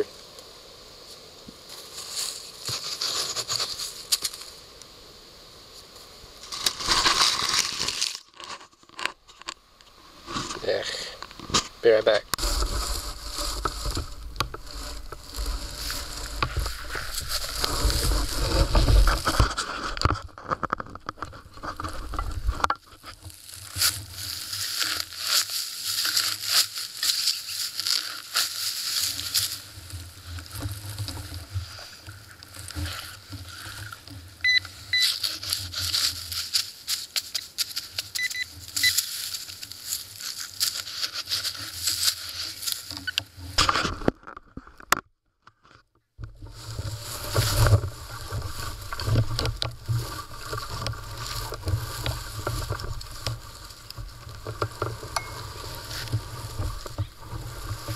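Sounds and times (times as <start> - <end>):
scraping and tearing of soil: 1.7 - 4.6, 6.4 - 44.8, 45.6 - 57.9
faint electronic beeps: 34.4 - 35.1, 38.2 - 39.0.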